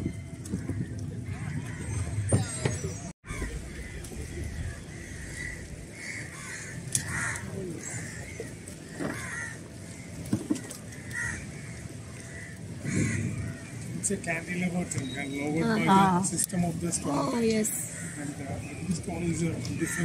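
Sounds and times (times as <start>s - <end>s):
crows cawing: 3.3s - 13.8s, 17.9s - 18.4s.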